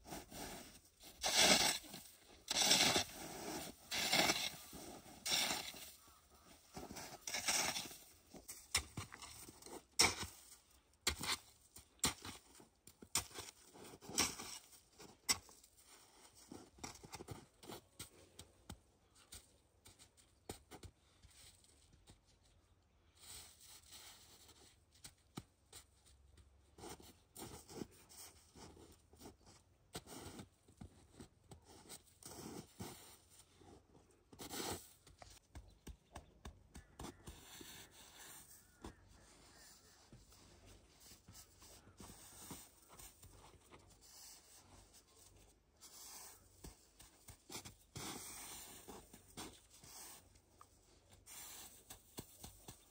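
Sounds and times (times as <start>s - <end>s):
snow shovel scraping snow: 0.0s - 6.0s, 6.7s - 8.1s, 47.6s - 50.2s, 51.3s - 51.8s
hands patting snow: 0.0s - 9.3s
boots crunching in snow: 0.0s - 9.6s.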